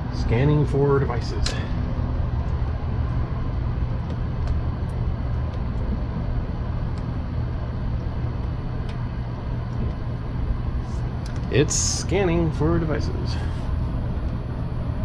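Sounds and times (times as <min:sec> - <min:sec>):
low rumble with hum: 0:00.0 - 0:15.0.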